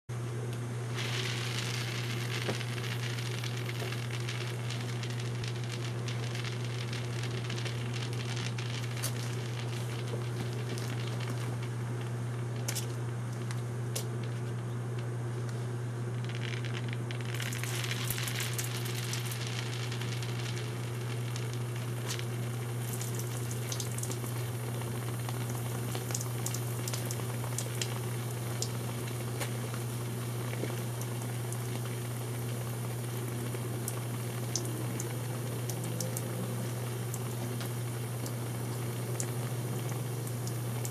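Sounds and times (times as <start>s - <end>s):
steady low hum: 0.1s - 40.9s
steam hissing and sizzling in hose: 0.9s - 11.7s, 17.2s - 31.9s.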